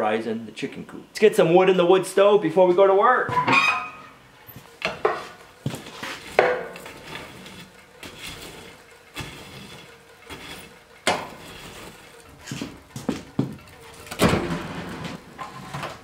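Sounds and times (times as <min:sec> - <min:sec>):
poker scraping coals in stove: 0:03.5 - 0:16.0
firewood knocking into stove: 0:06.4 - 0:06.8.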